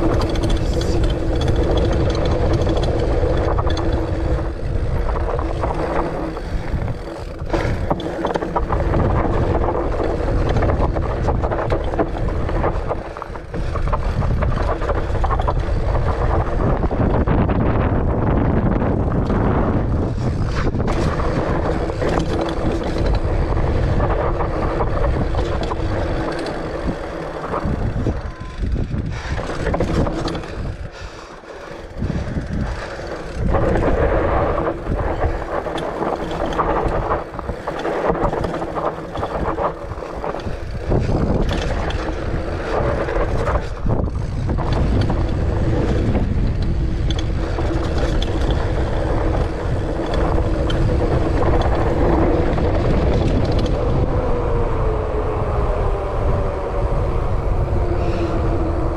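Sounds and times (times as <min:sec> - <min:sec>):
bike knocks and rattles: 0:00.0 - 0:54.8
bike tyres rolling on dirt: 0:00.0 - 0:58.9
wind buffeting microphone: 0:00.0 - 0:58.9.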